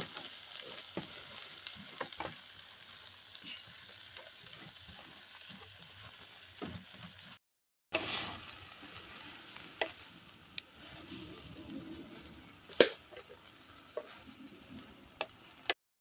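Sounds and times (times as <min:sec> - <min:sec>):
greens sizzling in pot: 0:00.0 - 0:07.4, 0:08.0 - 0:15.8
wooden spatula stirring: 0:03.5 - 0:07.4, 0:08.0 - 0:12.3, 0:13.0 - 0:15.8.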